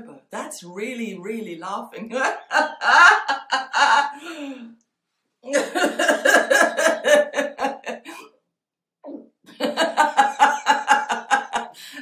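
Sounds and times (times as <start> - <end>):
woman laughing heartily: 2.2 - 4.7, 5.5 - 8.3, 9.5 - 12.0.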